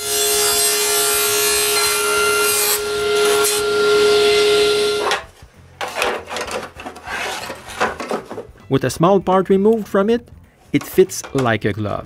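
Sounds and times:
table saw cutting plywood: 0.0 - 5.3.

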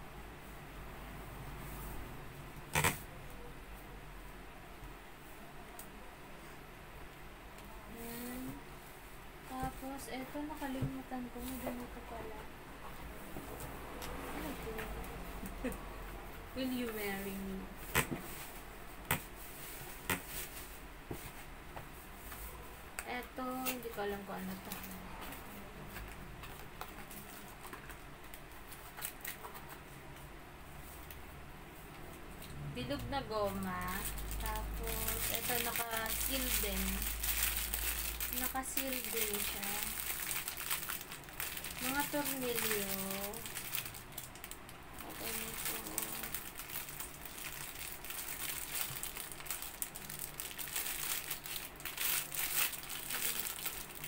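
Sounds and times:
light crinkles and clicks: 23.0 - 30.3
plastic bag crinkling: 23.4 - 25.4, 33.4 - 54.0
packaging rustling: 33.6 - 54.0.

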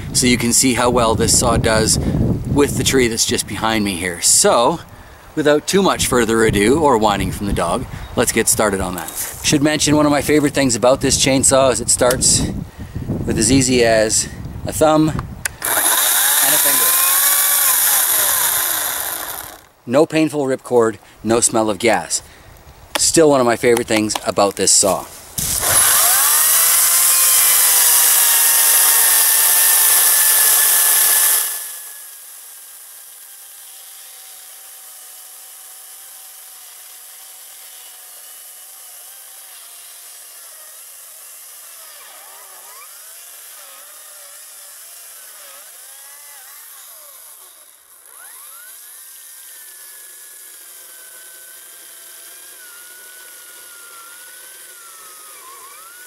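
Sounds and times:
electric chainsaw cutting wood: 15.4 - 19.8, 23.9 - 56.0.

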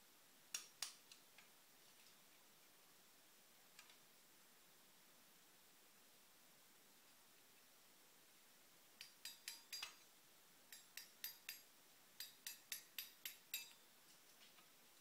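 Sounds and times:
hammer tapping on steel: 9.0 - 10.0, 10.7 - 13.8.

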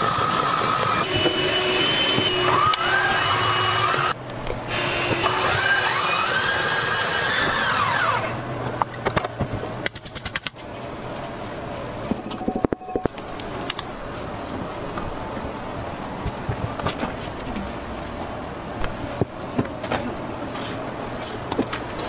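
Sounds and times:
rapid irregular clicking: 13.1 - 13.9.

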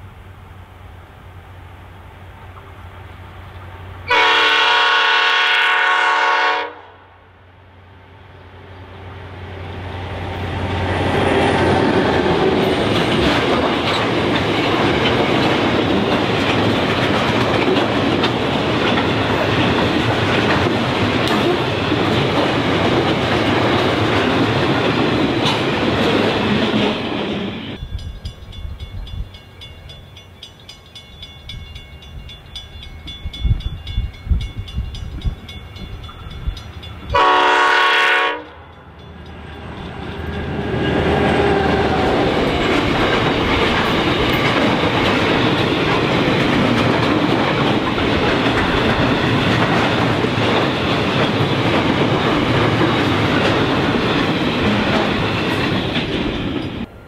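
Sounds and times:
distant train approaching: 0.0 - 57.0
locomotive horn blast: 4.0 - 7.1, 37.1 - 38.6
train wheels clattering on rail: 10.1 - 29.7, 31.0 - 56.9.

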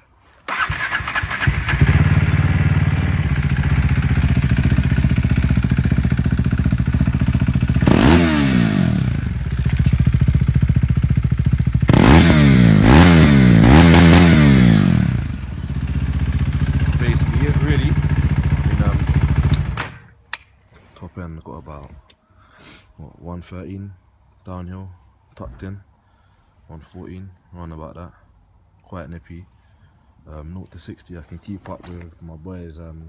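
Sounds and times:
motorcycle engine idling and revving: 0.5 - 20.0.

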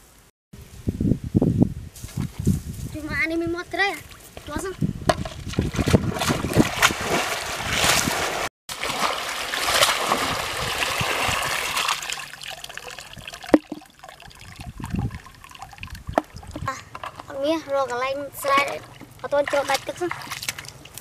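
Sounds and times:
muddy water splashing: 4.0 - 21.0
water pouring through basket: 5.5 - 17.4
water trickling and dripping: 10.6 - 21.0.

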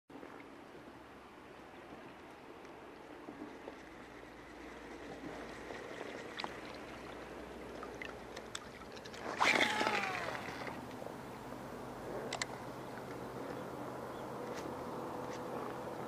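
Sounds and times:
lake water lapping and gurgling: 0.1 - 16.0
sound with gliding pitch: 9.4 - 14.1.

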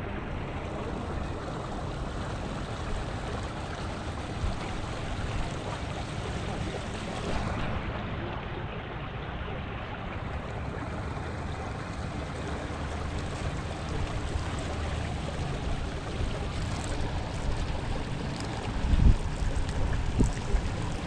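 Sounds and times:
river water rushing: 0.0 - 8.6, 9.2 - 21.0
wind: 0.0 - 21.0.

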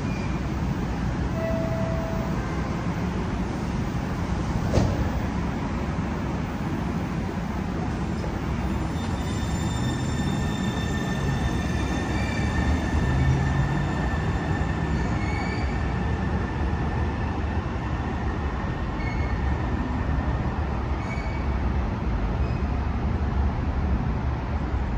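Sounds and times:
high whine of train: 0.0 - 24.9
light rail train rumbling: 0.0 - 24.9.

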